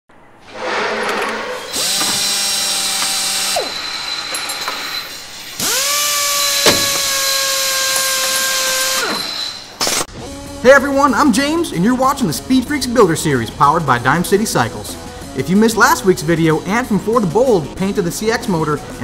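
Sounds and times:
power tool motor whining: 1.5s - 10.6s.

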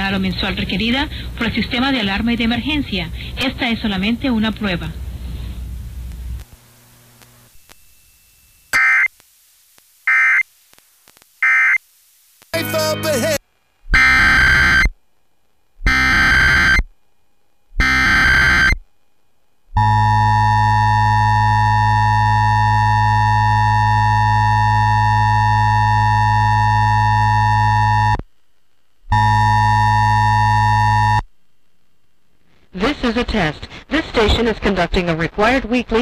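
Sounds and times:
two-tone attention signal: 17.8s - 18.8s.

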